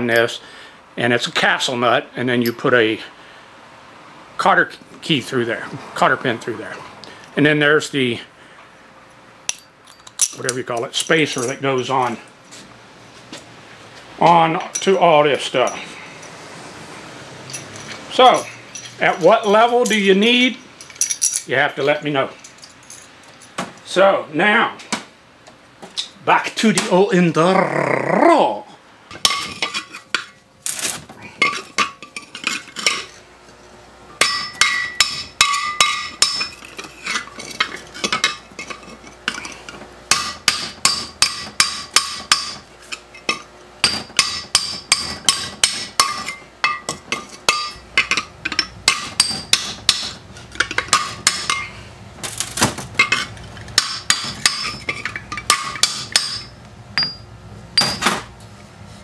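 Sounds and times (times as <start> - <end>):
hammer striking metal: 29.2 - 30.3, 34.2 - 36.6, 40.1 - 42.6, 43.8 - 50.2, 50.8 - 51.7, 53.8 - 58.2.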